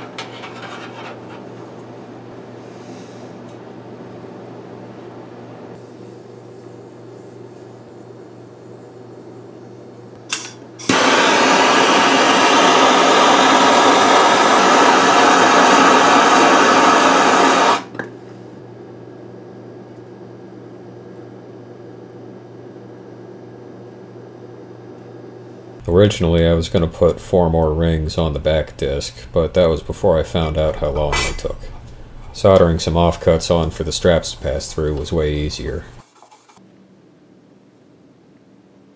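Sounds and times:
gas torch hissing: 10.3s - 18.0s.

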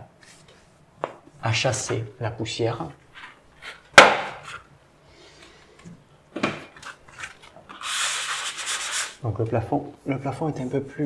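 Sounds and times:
hand sanding ceiling: 7.8s - 9.2s.

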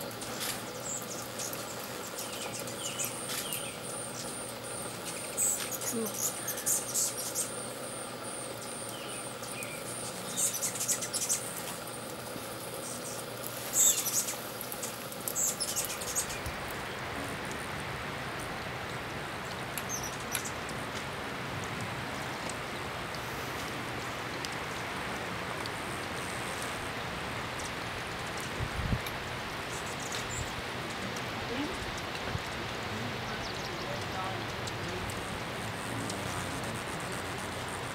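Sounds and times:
hummingbird chip notes: 0.0s - 17.7s, 32.8s - 37.9s
background hiss: 0.0s - 37.9s.

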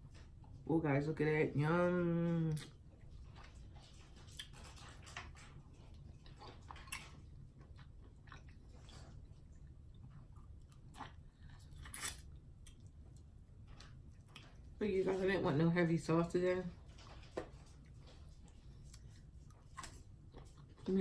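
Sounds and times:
chewing mouth sounds: 2.5s - 14.8s.

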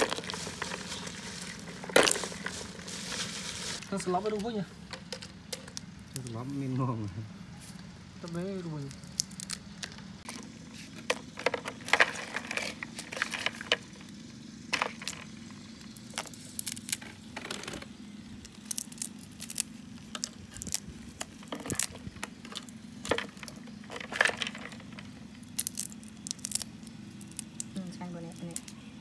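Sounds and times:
sharp clicks and crackles: 8.2s - 14.1s, 14.7s - 28.8s.

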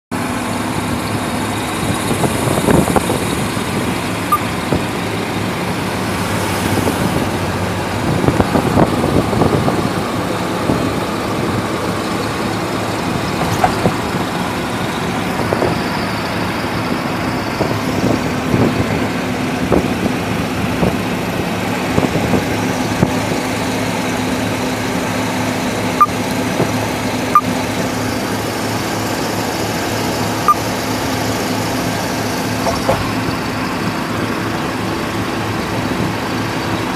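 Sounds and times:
engine and tyre hum: 0.1s - 36.9s
knocks and rattles in vehicle cab: 13.2s - 14.4s, 32.5s - 33.3s.

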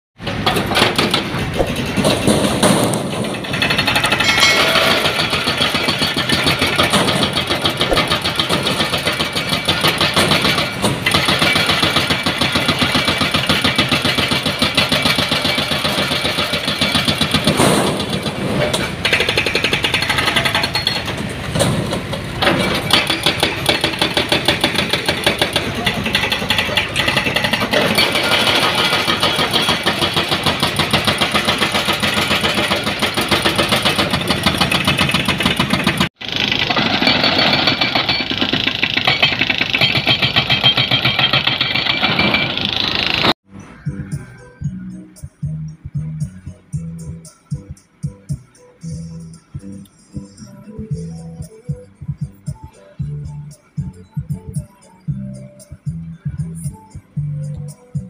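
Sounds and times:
hydraulic breaker hammering concrete: 0.2s - 43.4s
diesel engines running: 0.2s - 58.0s.

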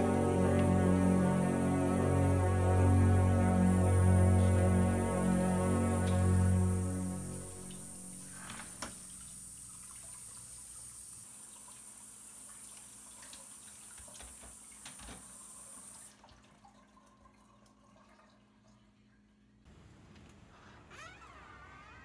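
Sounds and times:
faucet running into sink: 8.5s - 18.8s.

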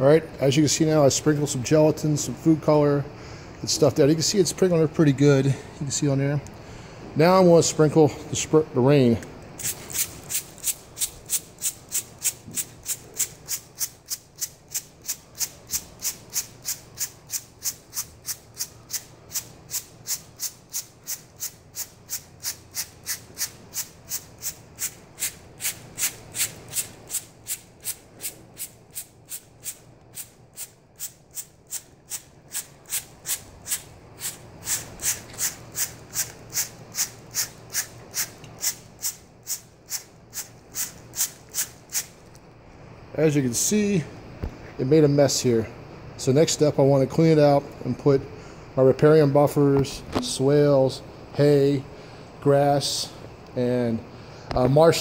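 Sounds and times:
spray bottle squirting: 9.6s - 42.2s.

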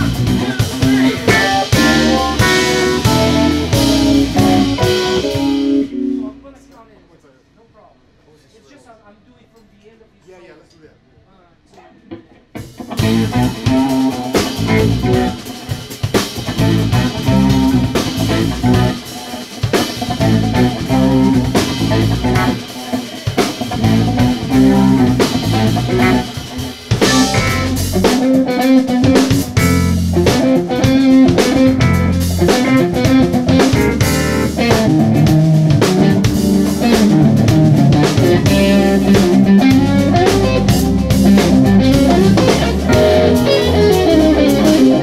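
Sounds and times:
electric guitar lead: 0.0s - 6.6s, 12.5s - 45.0s
jazz fusion band playing: 0.0s - 6.7s, 12.6s - 45.0s.

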